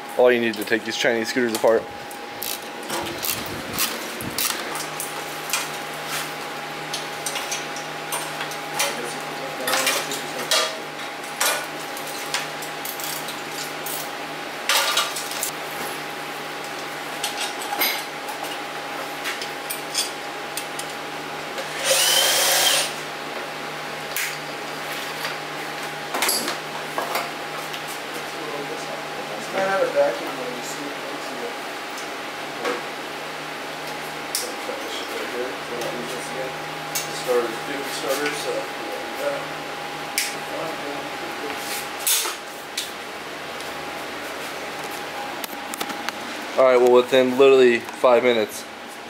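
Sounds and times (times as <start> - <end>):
steady hum: 0.0 - 17.3
cordless drill running: 21.7 - 23.0.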